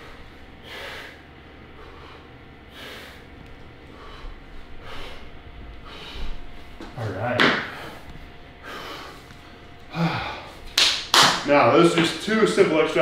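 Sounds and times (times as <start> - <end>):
man breathing: 0.0 - 6.9, 7.6 - 10.8.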